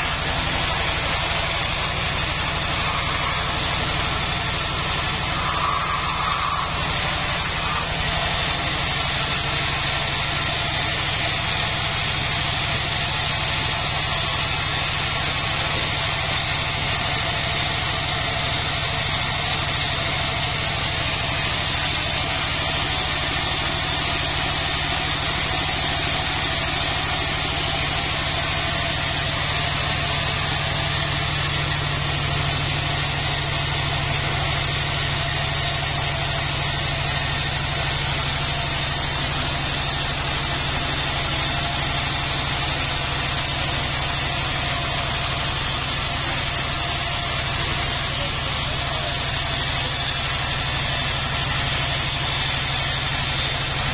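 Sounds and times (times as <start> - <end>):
band sawmill cutting log: 0.0 - 53.9.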